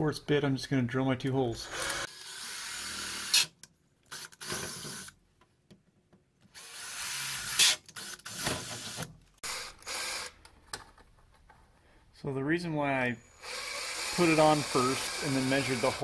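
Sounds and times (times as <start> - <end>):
cordless drill boring holes: 1.6 - 3.5, 4.1 - 5.1, 6.6 - 10.4, 13.2 - 16.0.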